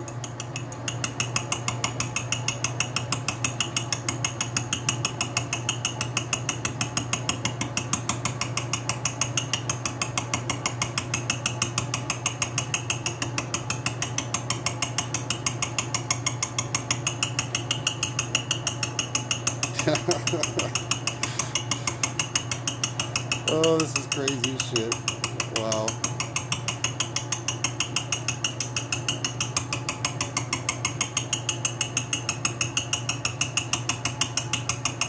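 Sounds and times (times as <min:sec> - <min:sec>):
gear cutter rapid ticking: 0:00.1 - 0:35.0
lathe humming: 0:05.0 - 0:31.6.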